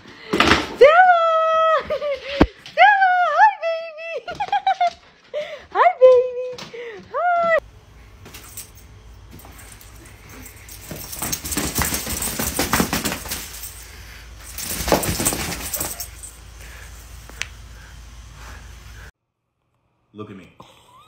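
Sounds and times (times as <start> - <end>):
collar tags jingling: 7.8 - 17.9
dog shaking plush toy: 8.2 - 17.0.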